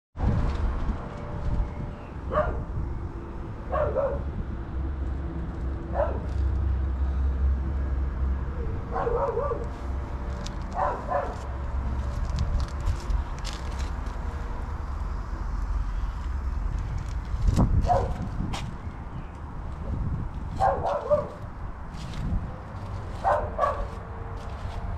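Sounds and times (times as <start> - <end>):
steady low rumble: 0.2 - 24.9
dog barking: 2.3 - 2.7, 3.7 - 4.2, 5.9 - 6.3, 8.9 - 9.7, 10.8 - 11.5, 17.9 - 18.2, 20.6 - 21.4, 23.2 - 24.0.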